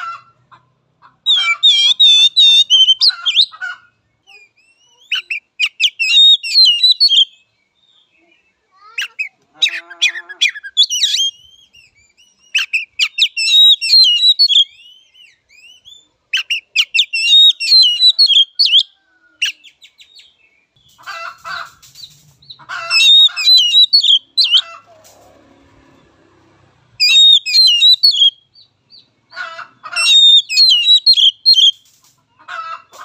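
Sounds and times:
bird singing whistles and chatter: 1.3s - 3.5s, 4.2s - 7.5s, 10.4s - 20.3s, 21.9s - 24.6s, 27.0s - 28.6s, 30.0s - 32.0s.

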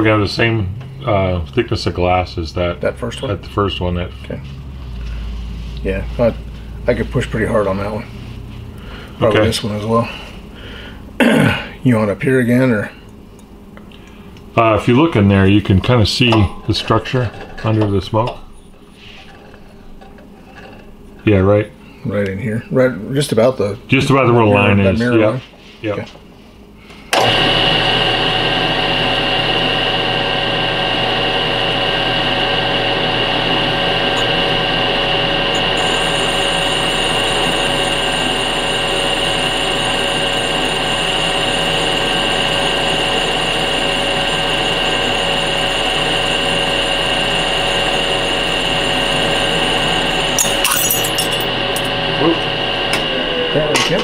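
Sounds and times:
lathe motor whining: 27.1s - 54.0s.

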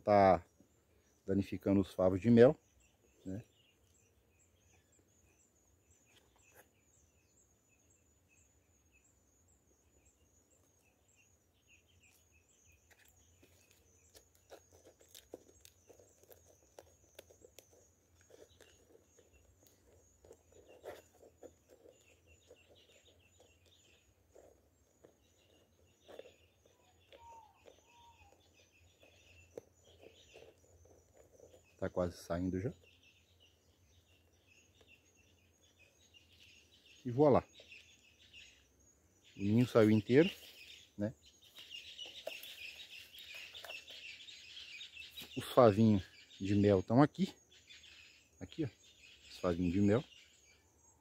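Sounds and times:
bird calls: 0.0s - 51.0s
clicks and scrapes on wood: 12.8s - 31.8s.

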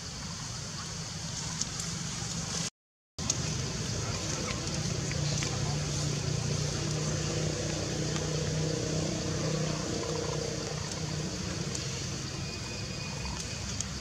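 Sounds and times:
constant hiss: 0.0s - 14.0s
vehicle engine droning: 3.2s - 14.0s.

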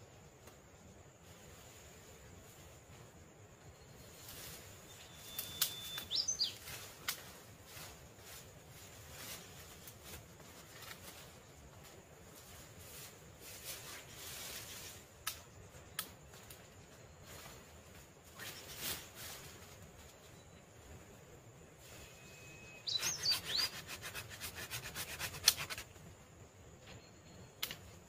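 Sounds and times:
steady outdoor hiss: 0.0s - 28.0s
bird chirp: 4.9s - 6.7s, 22.1s - 24.0s.

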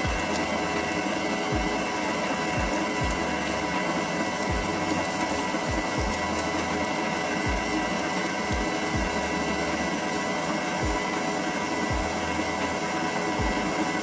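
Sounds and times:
stand mixer motor whine: 0.0s - 14.0s.

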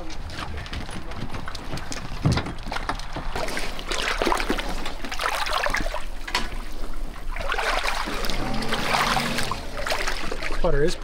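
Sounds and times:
feet splashing through water: 2.8s - 11.0s.

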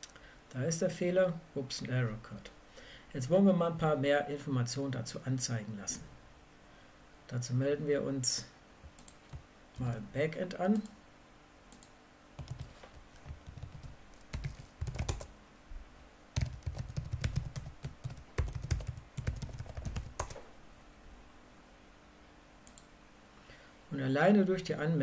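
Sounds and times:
typing on computer keyboard: 11.8s - 15.3s, 16.4s - 20.4s.

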